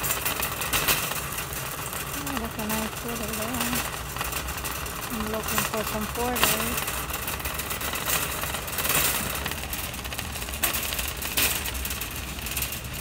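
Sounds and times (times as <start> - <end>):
shopping cart wheels rattling: 0.0 - 13.0
shopping cart knocks: 5.1 - 12.7.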